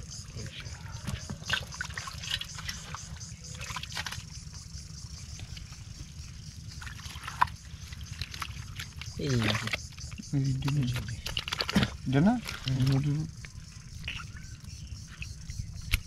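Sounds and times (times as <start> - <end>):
muddy water sloshing: 0.0 - 16.0
wet net rustling: 10.9 - 13.1.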